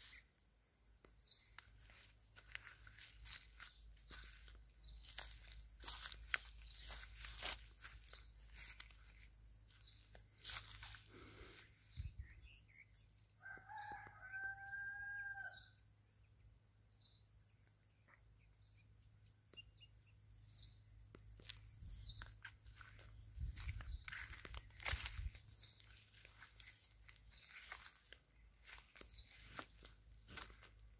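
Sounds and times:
rooster crowing: 13.4 - 15.8.

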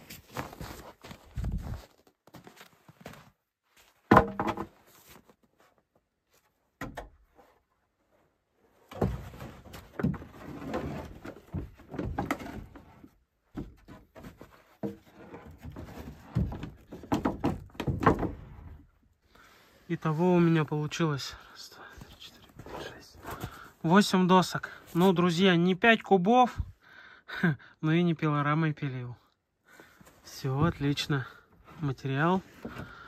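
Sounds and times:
wooden boards clacking: 4.1 - 4.7, 14.8 - 18.6
boards knocking and scraping: 4.1 - 4.9, 8.9 - 18.9.

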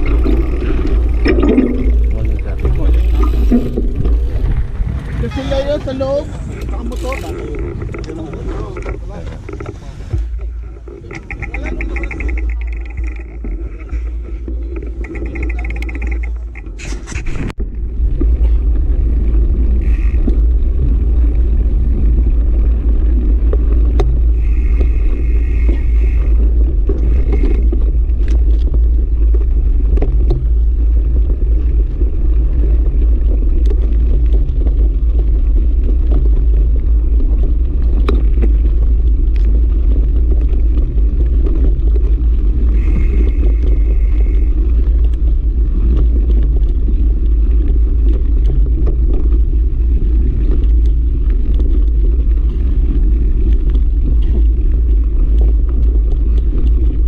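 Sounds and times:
bike rattles: 0.0 - 57.0
wind buffeting the microphone: 0.0 - 57.0
tyres crunching over gravel: 18.0 - 57.0.

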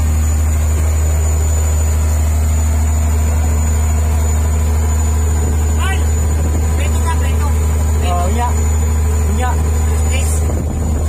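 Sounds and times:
boat engine droning: 0.0 - 11.0.

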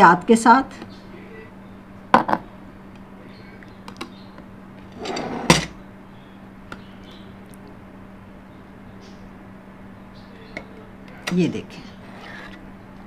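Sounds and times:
steady low hum: 0.0 - 13.0
metal scraping ceramic plate: 5.0 - 5.7.

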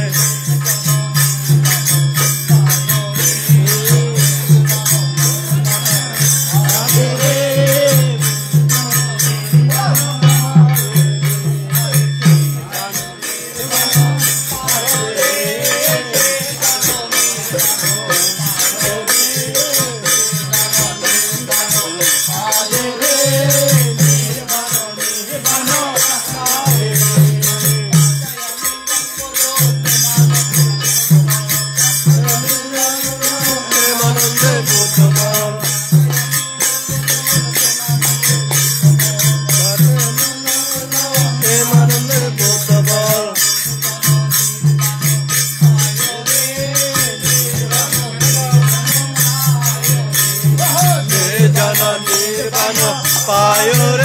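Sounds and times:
group singing: 0.0 - 54.0
hand cymbals jingling: 0.0 - 54.0
hand drum: 0.0 - 54.0.

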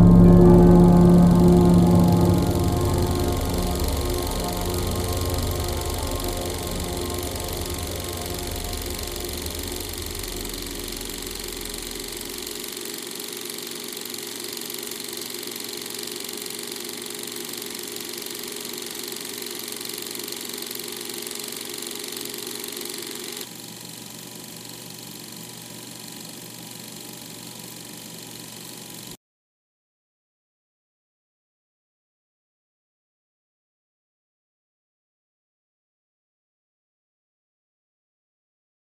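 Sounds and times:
ambient film score drone: 0.0 - 23.5.

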